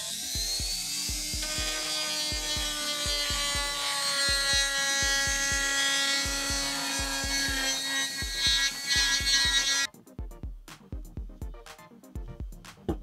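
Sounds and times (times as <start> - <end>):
rotary tool grinding plastic: 0.0 - 9.9
music beat thumping: 0.3 - 13.0.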